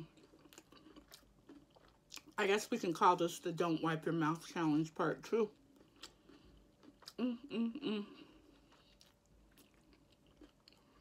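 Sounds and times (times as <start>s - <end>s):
woman humming: 7.1s - 8.3s.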